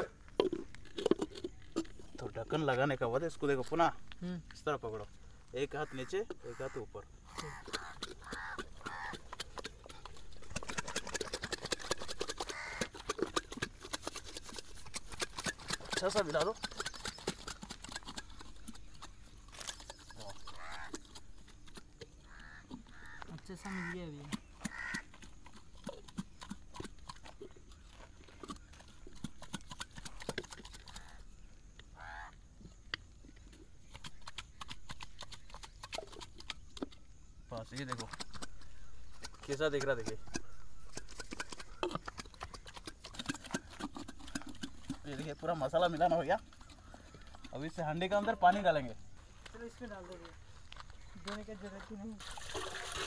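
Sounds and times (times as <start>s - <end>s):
clay pot shaken with lid knocking: 0.0s - 3.3s, 7.4s - 23.1s, 28.4s - 31.2s, 37.6s - 48.7s
bird calling: 5.6s - 13.2s, 15.4s - 26.5s, 30.0s - 32.8s.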